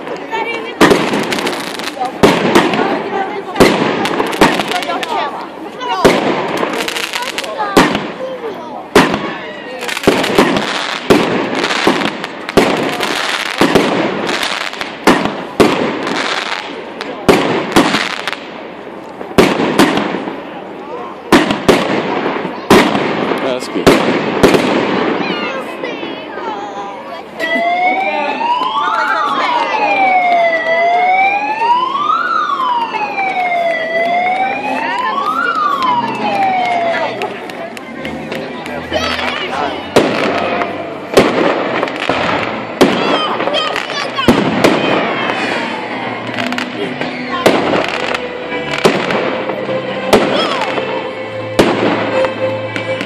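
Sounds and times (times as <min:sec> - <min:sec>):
firework bangs: 0:00.0 - 0:26.0, 0:39.0 - 0:53.0
siren wailing: 0:27.4 - 0:37.3.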